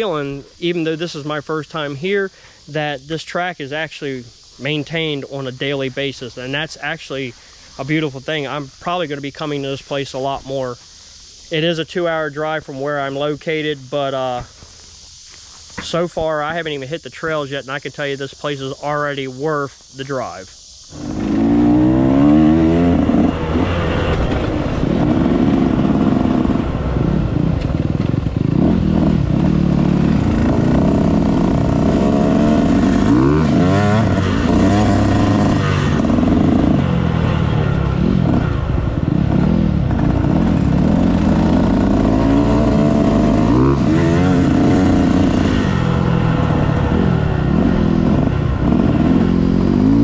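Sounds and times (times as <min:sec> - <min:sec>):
dirt bike engine revving: 0:20.9 - 0:50.0.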